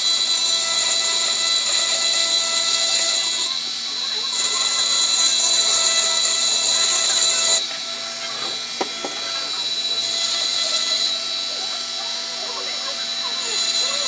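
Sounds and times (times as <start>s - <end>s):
rotary tool motor whining: 0.0s - 14.0s
bit grinding into glass: 4.2s - 12.1s, 12.7s - 14.0s.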